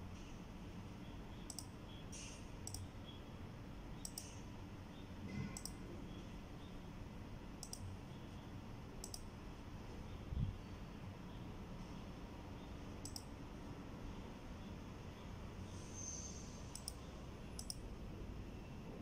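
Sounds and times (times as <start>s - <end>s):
computer mouse button clicks: 1.5s - 1.7s, 2.6s - 2.9s, 5.6s - 5.8s, 7.6s - 7.9s, 9.0s - 9.3s, 16.8s - 17.0s, 17.6s - 17.8s.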